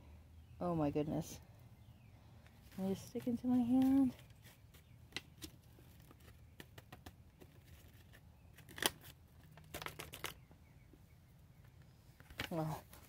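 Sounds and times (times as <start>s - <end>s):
paper packet crinkling: 7.5s - 10.4s
seeds clicking: 8.6s - 10.4s.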